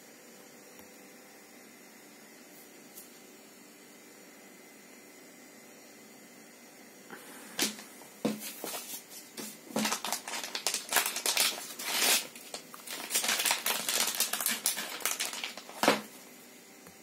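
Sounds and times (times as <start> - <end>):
packet knocking on desk: 7.6 - 8.5, 15.7 - 16.1
plastic bag crinkling: 7.6 - 16.2.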